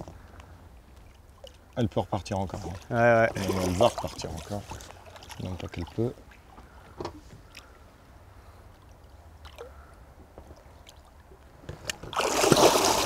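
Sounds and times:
water lapping against boat: 0.0 - 13.0
fish thrashing and splashing: 11.9 - 13.0.

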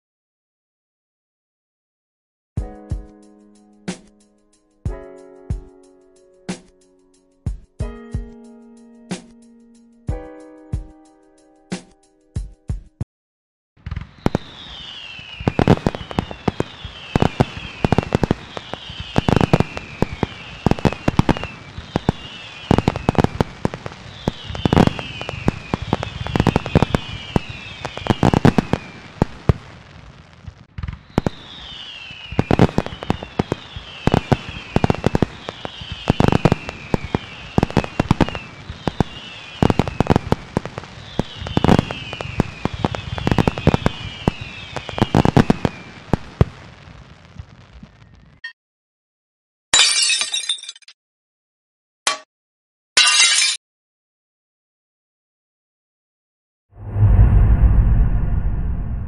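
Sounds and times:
falling firework whistles: 13.8 - 48.4
fireworks bangs and crackling: 13.8 - 48.4.

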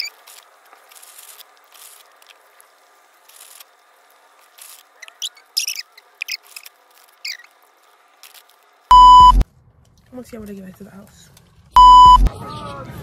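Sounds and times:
food wrappers rustling: 0.0 - 8.9.

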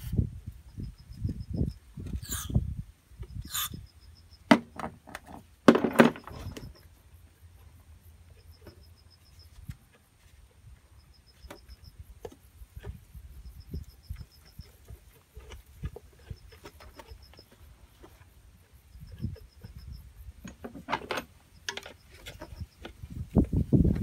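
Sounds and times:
clicks and knocks of parts: 20.4 - 23.1.

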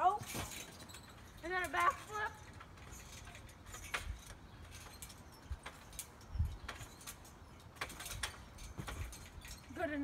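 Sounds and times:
feet thumping on trampoline mat: 7.8 - 9.4.

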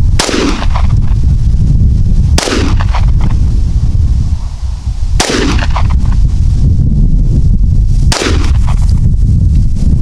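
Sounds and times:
wind buffeting microphone: 0.0 - 10.0
pistol shots with echo: 0.2 - 0.8, 2.4 - 3.0, 5.2 - 5.8, 8.1 - 8.6.

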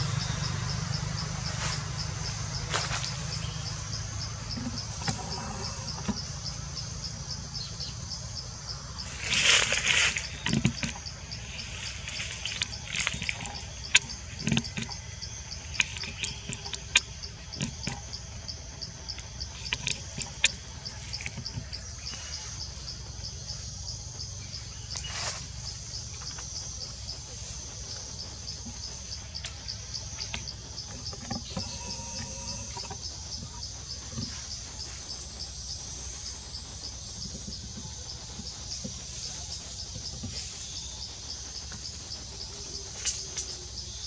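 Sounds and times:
insect chirping in steady pulse: 0.0 - 44.0.

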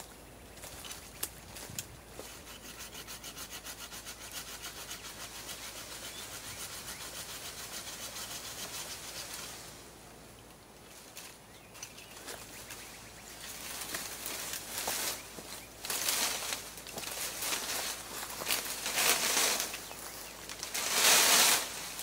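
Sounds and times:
saw cutting branch: 2.2 - 9.7, 15.8 - 22.0.

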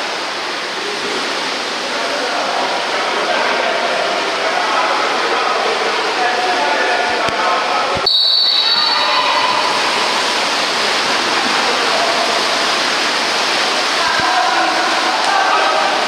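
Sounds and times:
crowd hubbub: 0.0 - 16.0
splashing water: 0.0 - 16.0
shrill referee's whistle: 8.0 - 9.8.

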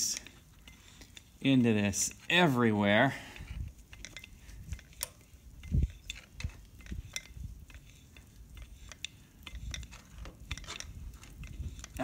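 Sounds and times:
grease gun mechanism clicking: 3.9 - 12.0.

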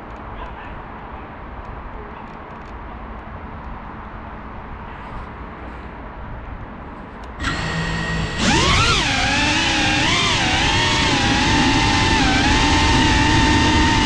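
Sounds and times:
quadcopter motors whining: 7.4 - 14.0.

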